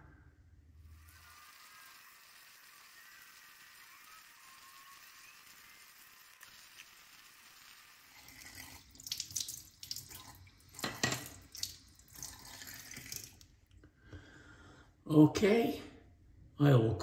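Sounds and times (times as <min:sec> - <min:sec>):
tap running into sink: 0:08.3 - 0:13.3.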